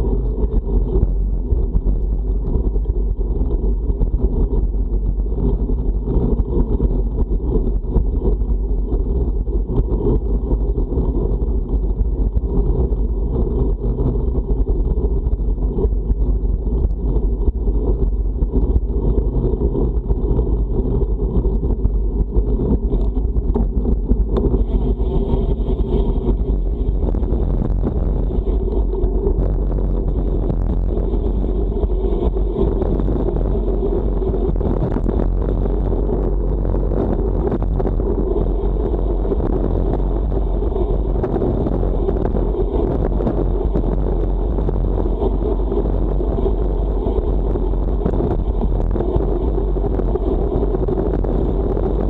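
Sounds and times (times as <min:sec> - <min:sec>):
wind buffeting microphone: 0:00.0 - 0:52.0.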